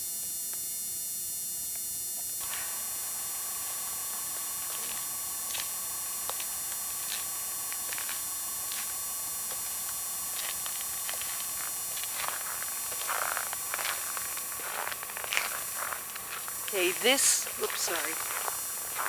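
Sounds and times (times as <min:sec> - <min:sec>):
tape hiss: 0:00.0 - 0:19.0
thin whine: 0:00.0 - 0:19.0
crutch tips tapping on icy sidewalk: 0:04.1 - 0:16.8.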